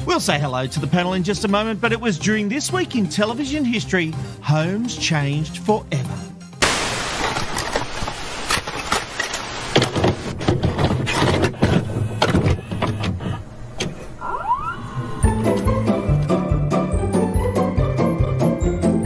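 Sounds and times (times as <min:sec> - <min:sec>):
music: 0:00.0 - 0:06.6, 0:15.0 - 0:19.0
static hiss: 0:06.6 - 0:10.4
short rising whine: 0:14.2 - 0:15.4.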